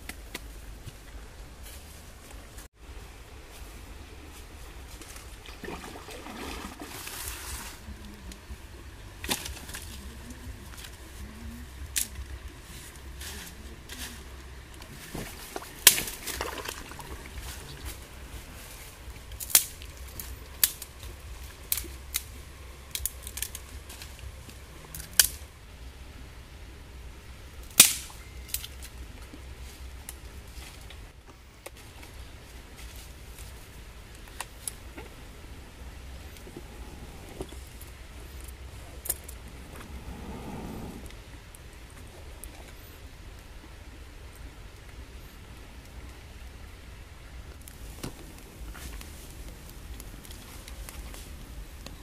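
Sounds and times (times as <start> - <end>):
dry sticks snapping: 0.0 - 0.6, 11.9 - 12.4, 15.6 - 16.8, 19.3 - 22.3, 22.9 - 25.4, 27.7 - 29.0.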